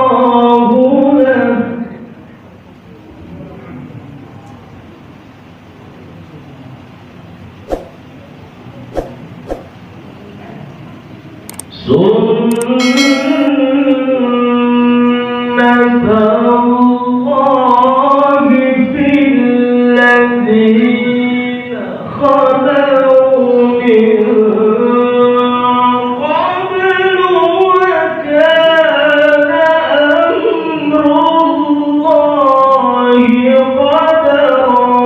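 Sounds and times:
melodic recitation by single voice: 0:11.7 - 0:35.0.

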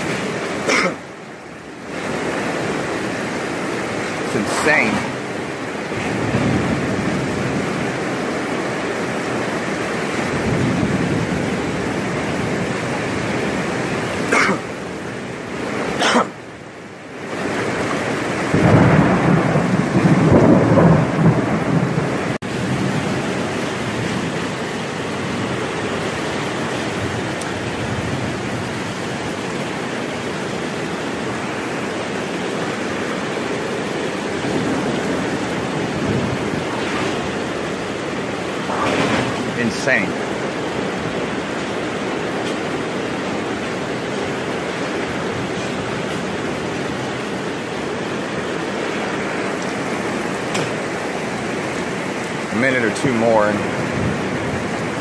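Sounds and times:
heavy rain pouring: 0:00.0 - 0:55.0
thunder rumbling: 0:04.1 - 0:09.0, 0:10.1 - 0:14.2, 0:18.2 - 0:53.0, 0:53.6 - 0:55.0
thunder cracks: 0:05.9 - 0:07.9, 0:18.5 - 0:24.3, 0:34.4 - 0:41.5.

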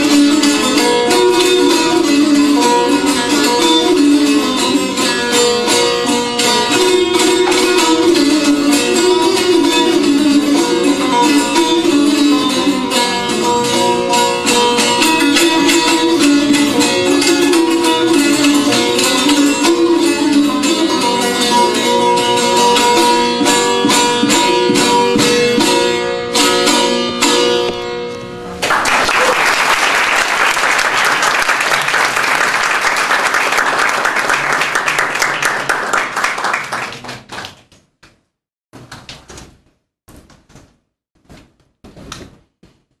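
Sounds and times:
plucked lute duet: 0:00.0 - 0:28.6
audience applause: 0:28.6 - 0:37.6.

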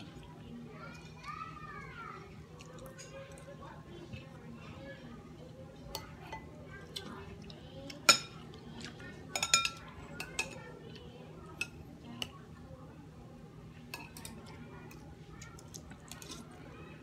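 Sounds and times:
cutlery clinking on glass bowl: 0:09.3 - 0:10.6.

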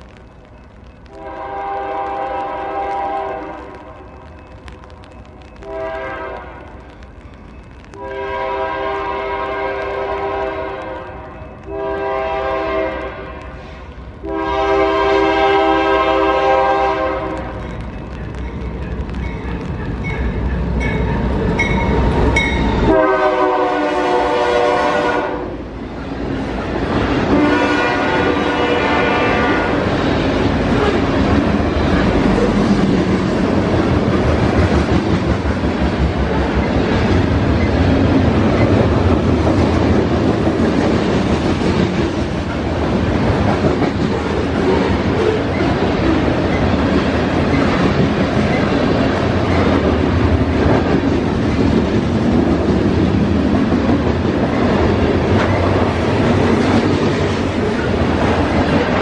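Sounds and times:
train horn: 0:01.1 - 0:03.9, 0:05.6 - 0:06.7, 0:08.0 - 0:13.6, 0:14.2 - 0:17.6, 0:22.8 - 0:25.6, 0:27.3 - 0:30.0
train wheels clacking on rails: 0:26.6 - 0:59.0.

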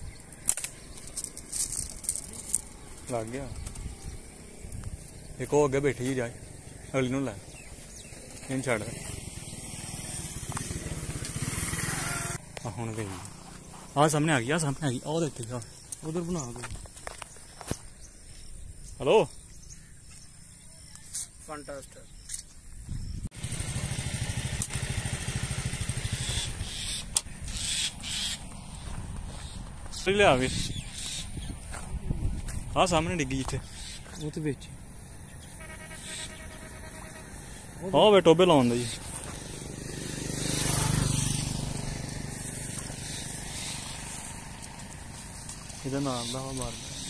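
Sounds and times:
vehicle engine passing by: 0:06.2 - 0:14.3, 0:23.4 - 0:27.0, 0:36.0 - 0:47.0
engine puttering: 0:08.5 - 0:14.7, 0:23.4 - 0:28.0.

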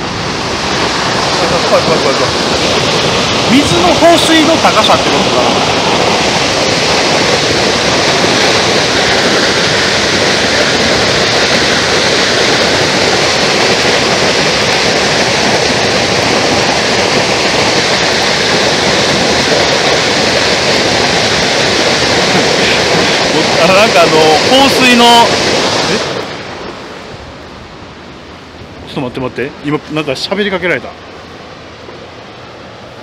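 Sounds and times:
water rushing down a spillway: 0:00.0 - 0:33.0.

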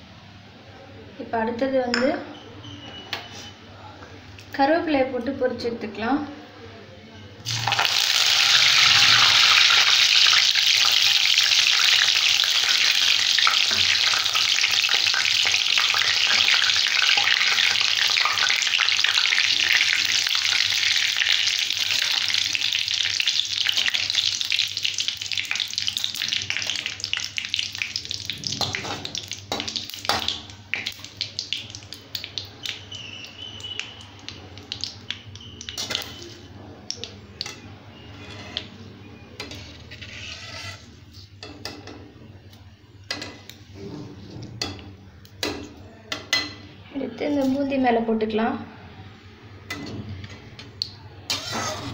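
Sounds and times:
leaves sizzling in hot oil: 0:07.5 - 0:36.4
metal spatula scraping a pan: 0:37.9 - 0:38.8, 0:39.4 - 0:41.4, 0:51.3 - 0:51.9.

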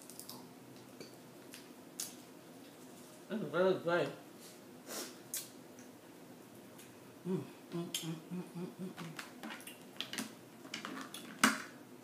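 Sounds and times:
woman humming: 0:07.2 - 0:09.3.

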